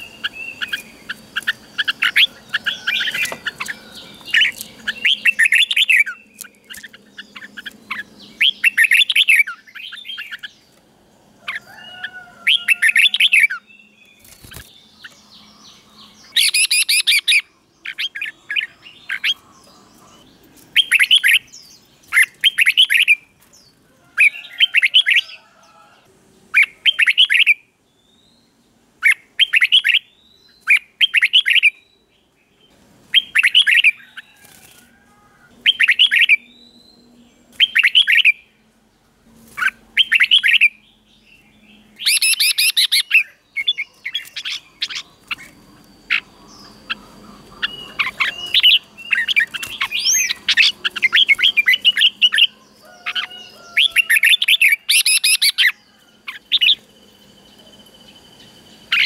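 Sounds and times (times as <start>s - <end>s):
bird warbling: 42.0s - 56.8s.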